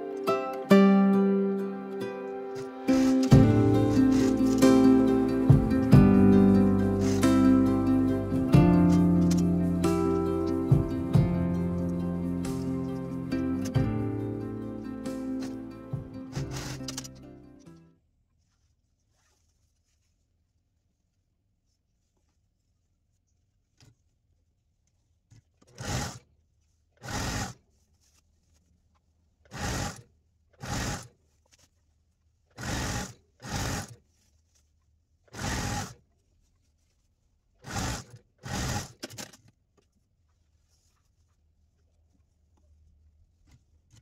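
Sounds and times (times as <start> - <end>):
sewing machine stitching: 2.9 - 5.9, 7.0 - 7.7, 16.3 - 17.2, 25.6 - 26.3, 27.0 - 27.6, 29.5 - 30.0, 30.6 - 31.1, 32.6 - 34.0, 35.3 - 36.0, 37.6 - 39.5.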